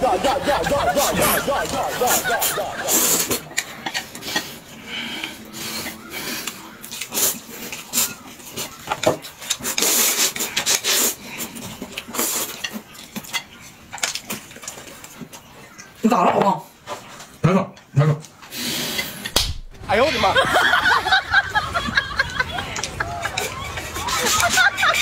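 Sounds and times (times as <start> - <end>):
noodles being slurped: 0.0 - 15.5.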